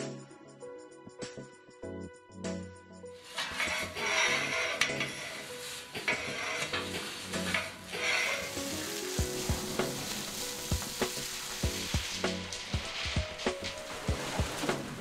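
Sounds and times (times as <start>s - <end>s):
background music: 0.0s - 15.0s
hose spraying water: 3.1s - 15.0s.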